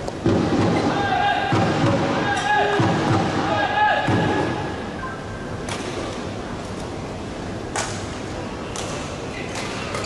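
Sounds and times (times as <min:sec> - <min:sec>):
large hall background: 0:00.0 - 0:10.0.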